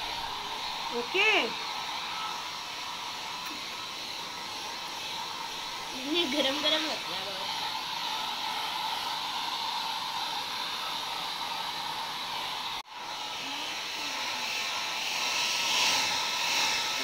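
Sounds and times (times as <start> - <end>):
hair dryer blowing: 0.0 - 17.0.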